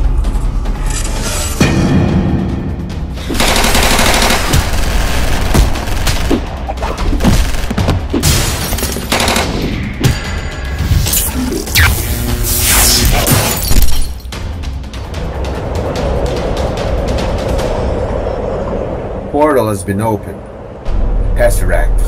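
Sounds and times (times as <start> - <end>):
action music: 0.0 - 19.2
rapid automatic gunfire: 3.3 - 6.4, 7.3 - 7.8, 9.1 - 9.6.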